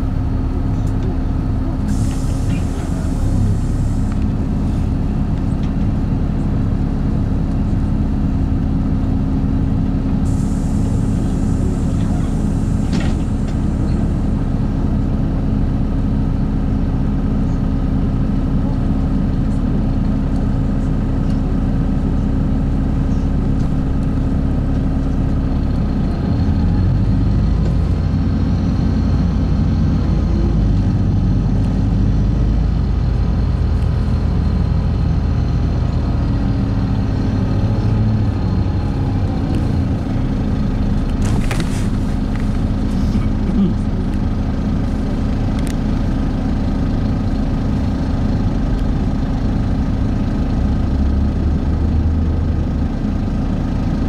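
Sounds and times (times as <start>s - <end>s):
bus engine drone: 0.0s - 54.0s.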